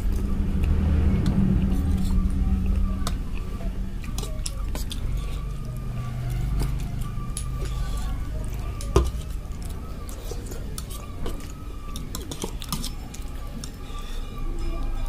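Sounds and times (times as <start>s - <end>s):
fork stirring noodles in bowl: 3.0s - 15.0s.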